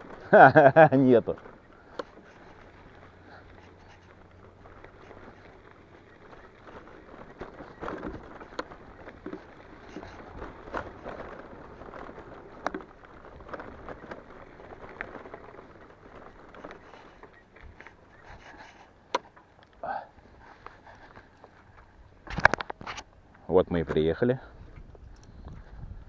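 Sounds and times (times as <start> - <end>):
bike rattling and knocking: 0.0 - 19.6
tyres crunching on dirt: 0.0 - 26.0.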